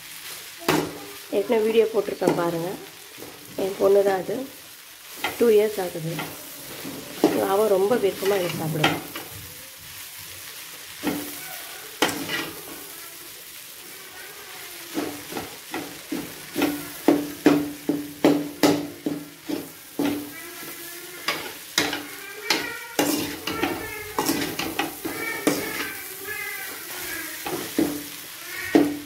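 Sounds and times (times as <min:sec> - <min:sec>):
food sizzling: 0:00.0 - 0:29.0
spatula scraping a pan: 0:05.0 - 0:09.3, 0:10.0 - 0:12.9, 0:14.8 - 0:29.0
spatula knocking on ringing pan: 0:14.9 - 0:20.4.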